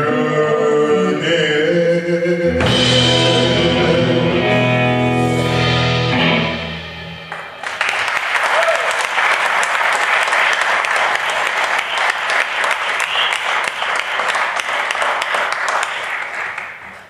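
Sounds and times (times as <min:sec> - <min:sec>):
audience applauding: 0:07.3 - 0:17.0.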